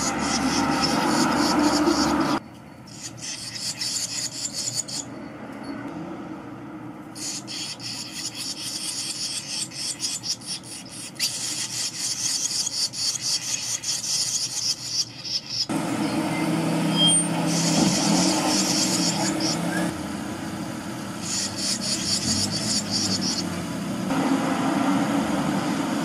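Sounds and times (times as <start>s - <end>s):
nestlings begging chatter: 0.0s - 5.1s, 7.2s - 20.0s, 21.0s - 23.7s.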